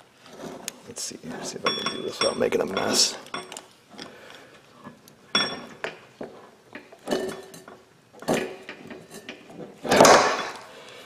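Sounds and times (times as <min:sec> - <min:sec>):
light metal clinks: 0:01.6 - 0:04.1.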